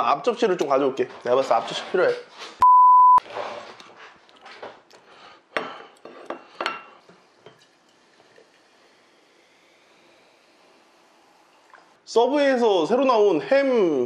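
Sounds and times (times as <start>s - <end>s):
cola pouring into a glass: 7.0s - 12.0s.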